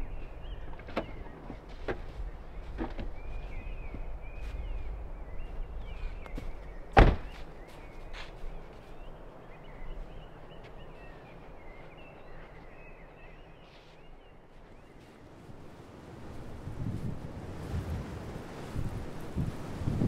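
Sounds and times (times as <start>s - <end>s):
car door slamming: 7.0s - 7.4s.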